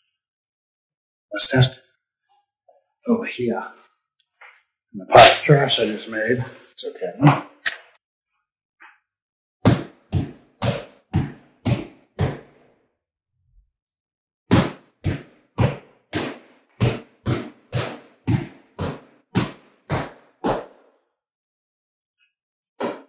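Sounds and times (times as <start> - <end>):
sword striking punching bag: 14.5 - 20.7.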